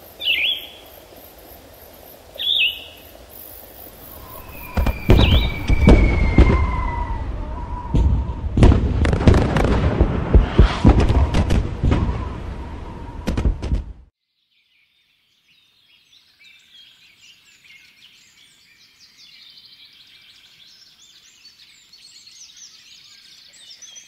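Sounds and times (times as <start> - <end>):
short bird-like chirps: 4.0 - 6.8
faint falling whistle: 4.1 - 8.8, 10.6 - 13.7
rapid bangs and crackles: 4.2 - 6.8, 7.9 - 12.5, 13.2 - 14.1.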